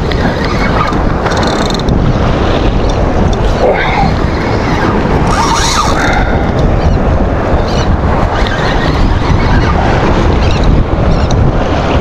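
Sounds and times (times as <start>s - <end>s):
waves washing against rocks: 0.0s - 12.0s
wind buffeting microphone: 0.0s - 12.0s.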